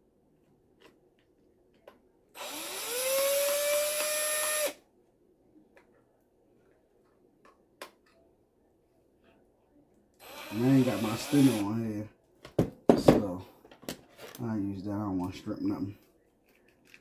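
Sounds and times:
cordless drill motor whine: 0:02.4 - 0:04.8, 0:10.2 - 0:11.7.

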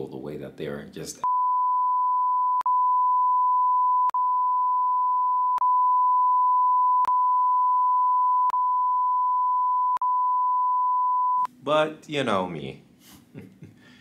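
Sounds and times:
censor bleep tone: 0:01.2 - 0:11.5.

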